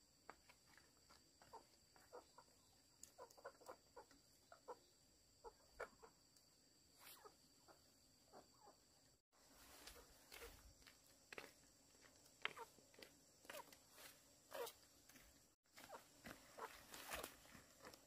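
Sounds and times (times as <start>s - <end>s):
chickens clucking: 1.5s - 6.2s, 15.8s - 17.3s.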